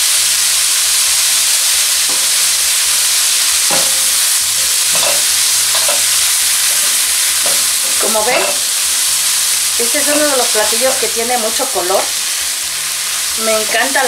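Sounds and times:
vegetables sizzling in oil: 0.0s - 14.0s
spatula scraping a skillet: 3.7s - 8.8s.

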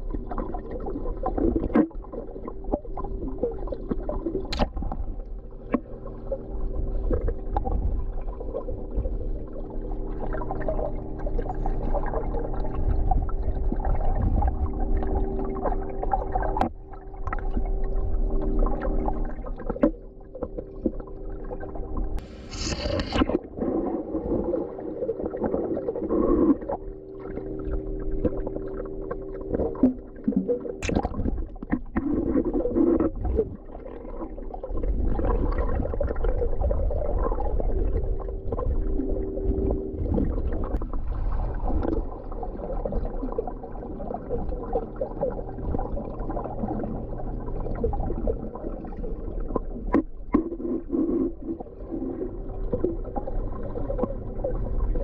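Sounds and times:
bubbles gurgling: 0.0s - 55.0s
underwater hum and rumble: 0.0s - 55.0s
swimmer swishing through water: 20.6s - 55.0s.

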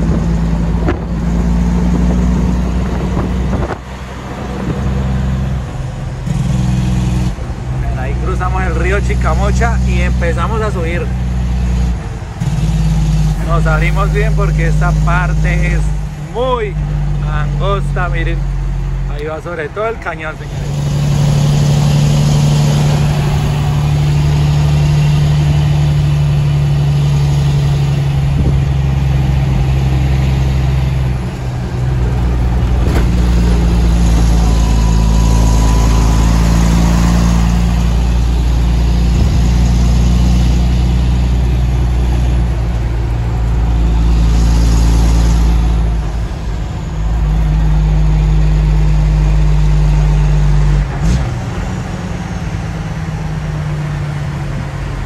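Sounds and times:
truck diesel engine droning: 0.0s - 55.0s.

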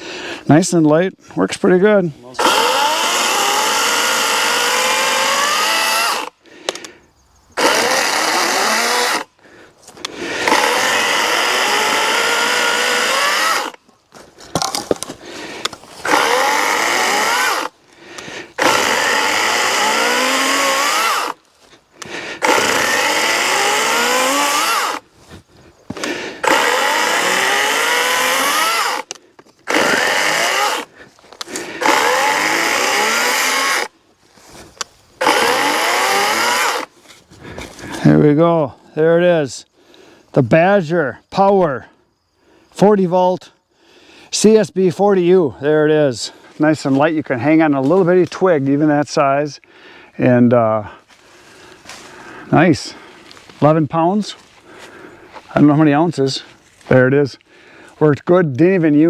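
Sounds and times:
electric chainsaw cutting log: 2.4s - 6.3s, 7.6s - 9.3s, 10.4s - 13.8s, 16.0s - 17.7s, 18.6s - 21.4s, 22.4s - 25.0s, 26.0s - 33.9s, 35.2s - 36.9s.

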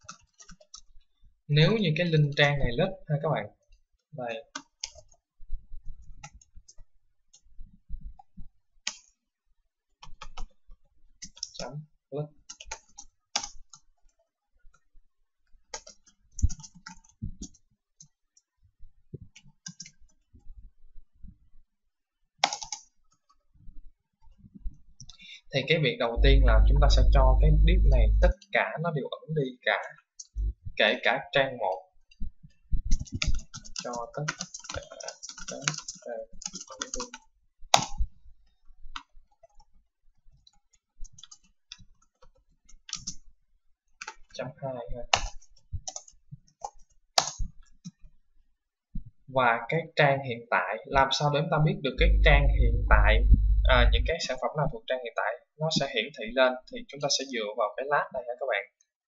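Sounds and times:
keyboard typing: 0.0s - 0.9s, 4.4s - 5.2s, 8.1s - 9.2s, 10.0s - 10.6s, 11.2s - 11.7s, 12.4s - 14.2s, 15.7s - 18.1s, 19.2s - 20.3s, 22.4s - 23.4s, 26.2s - 28.4s, 32.4s - 38.1s, 40.3s - 43.2s, 45.0s - 48.0s, 51.4s - 54.4s.

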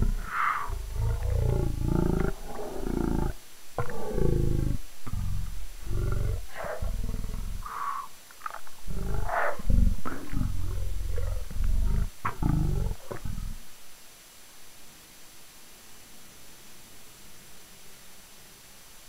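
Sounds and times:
distorted low-pitched voice: 0.0s - 13.7s.

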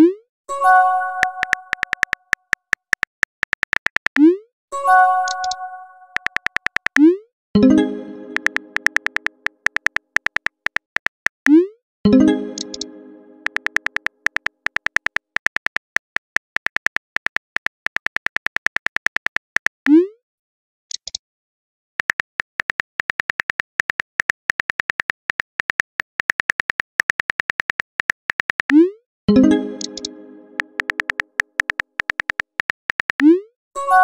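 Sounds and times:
keyboard typing clicks: 1.2s - 4.3s, 5.2s - 7.1s, 7.7s - 11.6s, 12.2s - 19.8s, 22.0s - 28.8s, 29.4s - 33.3s.

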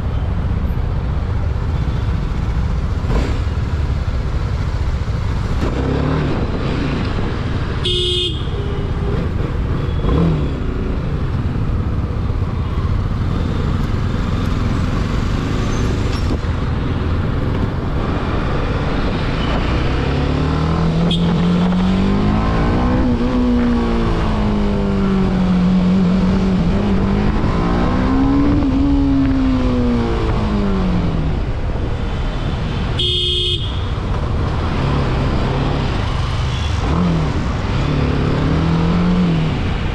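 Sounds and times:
vehicle horn toot: 7.8s - 8.8s, 21.0s - 21.5s, 33.0s - 33.9s.

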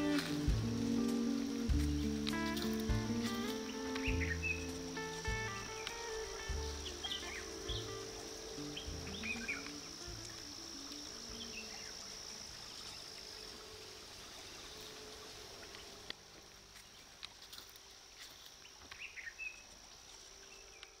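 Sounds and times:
short insect chirps: 0.0s - 16.1s
insects droning: 0.0s - 21.0s.

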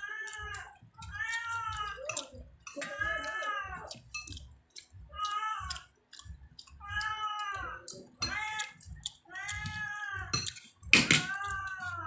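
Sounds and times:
cat meowing: 0.0s - 4.0s, 5.2s - 5.9s, 6.8s - 10.4s, 11.0s - 12.0s.

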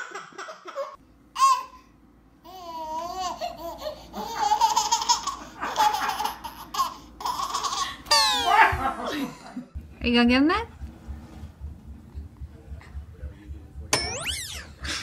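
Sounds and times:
baby giggling: 2.5s - 8.8s
toddler squealing and laughing: 8.1s - 8.8s.

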